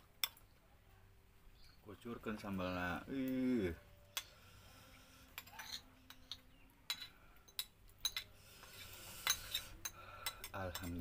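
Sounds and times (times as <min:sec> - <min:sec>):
metal spoon clinking on ceramic bowl: 0:05.4 - 0:08.3, 0:09.2 - 0:11.0.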